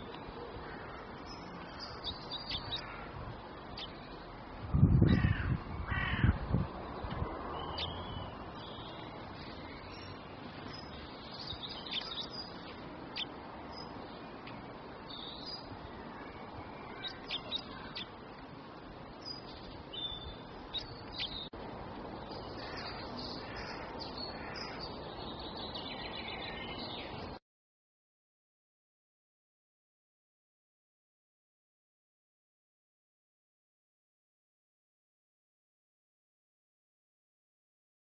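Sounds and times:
songbirds chirping: 0.0s - 27.4s.

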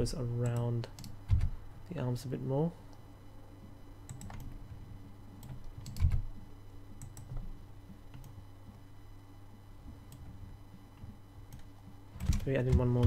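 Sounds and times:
faint steady low hum: 0.0s - 13.0s
computer keyboard clicks: 5.4s - 6.2s.

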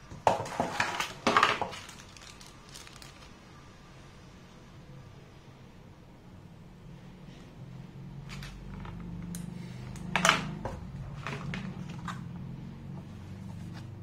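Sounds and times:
packaging clicks and rustles: 0.3s - 3.4s, 9.9s - 12.3s.

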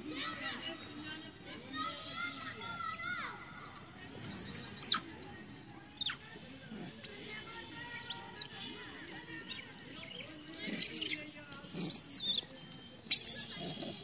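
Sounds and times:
high-pitched squeaky animal calls: 2.3s - 8.6s, 9.4s - 14.0s.

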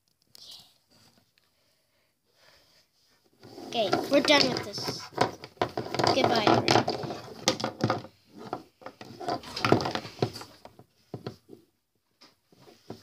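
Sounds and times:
plastic toys set down on wood: 3.9s - 11.4s.

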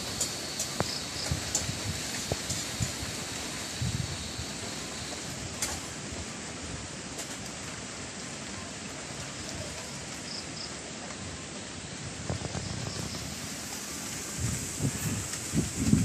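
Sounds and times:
wind buffeting microphone: 0.0s - 7.1s, 12.0s - 16.0s
rain and wind in trees: 0.0s - 16.0s.

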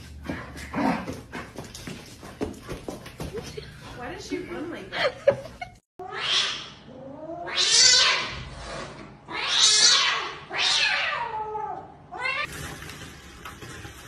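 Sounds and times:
cats hissing and yowling: 6.0s - 12.5s.

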